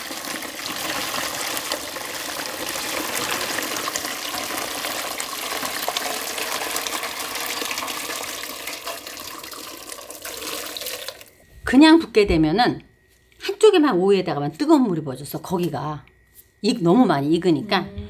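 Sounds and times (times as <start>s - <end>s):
liquid pouring and splashing: 0.0s - 11.4s.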